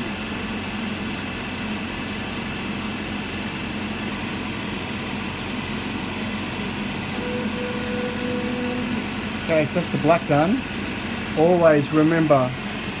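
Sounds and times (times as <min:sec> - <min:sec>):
cooling fans humming: 0:00.0 - 0:13.0
high thin whine: 0:07.0 - 0:12.6
low steady tone: 0:07.1 - 0:11.1.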